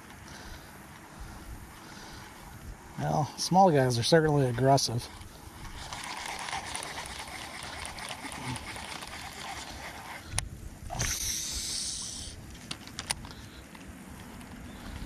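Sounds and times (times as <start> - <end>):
boat noise: 4.6 - 13.6
fishing lure on water: 4.9 - 13.4
hiss: 10.9 - 12.4.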